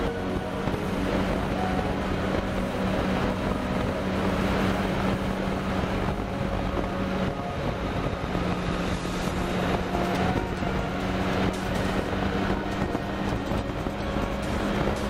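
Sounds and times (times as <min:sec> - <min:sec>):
motorcycle engine running: 0:00.0 - 0:15.0
wind noise on microphone: 0:00.0 - 0:15.0.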